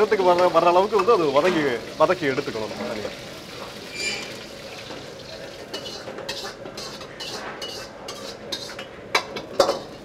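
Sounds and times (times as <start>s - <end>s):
vegetables frying in oil: 0.0s - 10.0s
metal ladle scraping pan: 3.8s - 4.5s, 5.7s - 10.0s.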